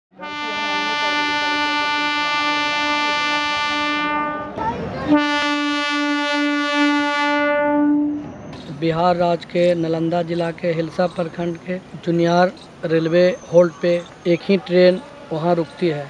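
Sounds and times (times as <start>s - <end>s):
train horn blasts: 0.2s - 8.3s.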